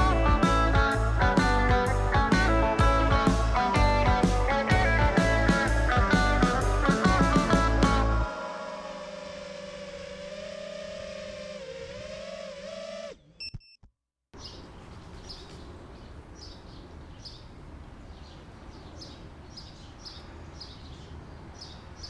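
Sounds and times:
quadcopter motors humming: 7.6s - 13.5s
short beeps: 13.4s - 13.9s
bird chirping: 14.4s - 22.0s
outdoor background noise: 14.4s - 22.0s.

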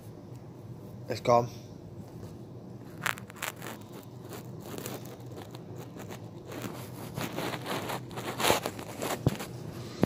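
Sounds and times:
phone handling crackles and rustles: 2.8s - 9.6s.

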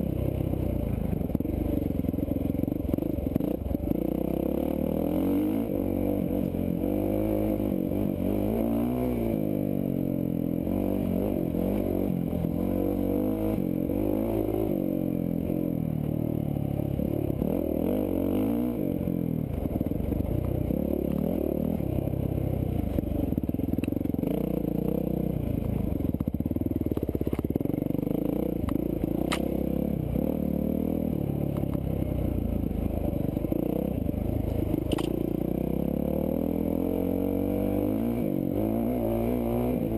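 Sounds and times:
sharp click: 28.6s - 29.5s, 34.9s - 35.2s
dirt bike engine revving: 34.9s - 39.9s.

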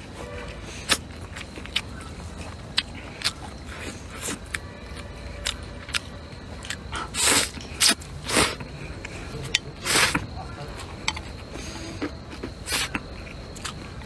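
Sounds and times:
loud slurps of noodles: 7.0s - 8.6s.

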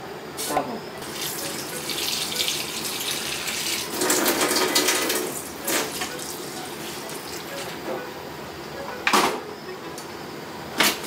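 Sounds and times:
tap water running into sink: 1.0s - 6.4s.

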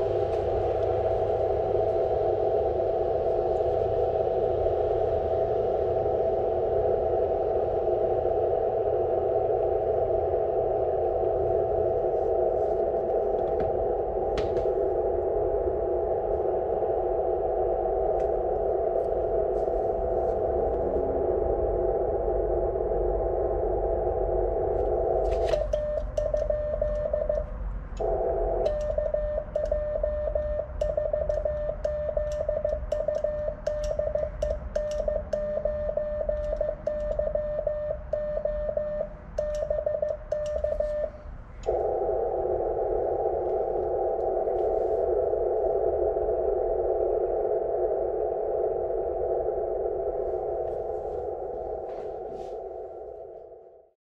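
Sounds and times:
radio receiver hiss: 0.0s - 53.8s
morse code tone: 24.8s - 46.1s.

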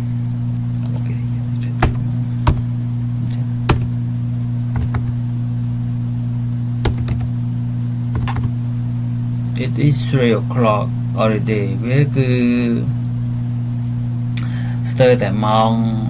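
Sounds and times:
low electrical hum: 0.0s - 16.0s
computer keyboard clicks: 4.8s - 5.2s, 6.9s - 7.3s, 8.2s - 8.5s.

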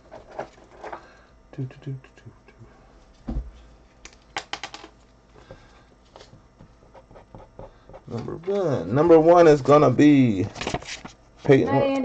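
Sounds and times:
dull thump: 3.2s - 3.6s.

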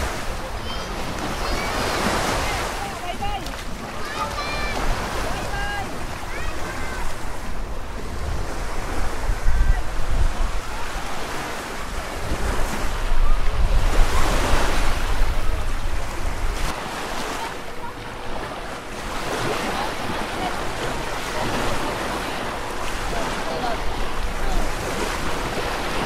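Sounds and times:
small waves washing onto sand: 0.0s - 26.0s
wind rumbling on microphone: 4.6s - 16.8s.

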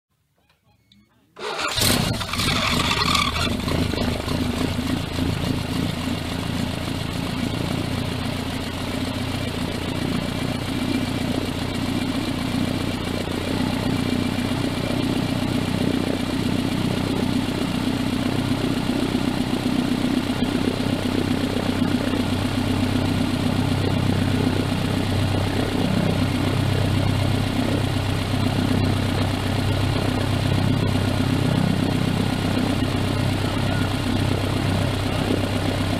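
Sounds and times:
craft engine running: 1.5s - 35.9s.

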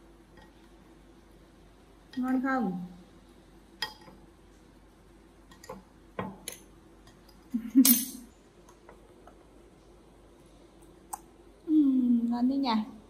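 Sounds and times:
metal spoon clinking on porcelain: 7.8s - 8.3s.

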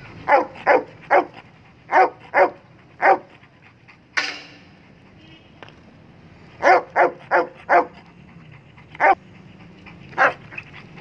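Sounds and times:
dog barking: 0.2s - 3.3s, 6.6s - 8.0s, 10.2s - 10.4s.

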